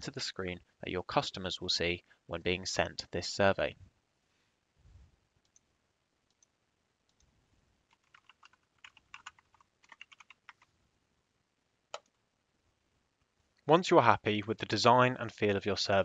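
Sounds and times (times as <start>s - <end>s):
typing on a computer keyboard: 7.9s - 10.7s.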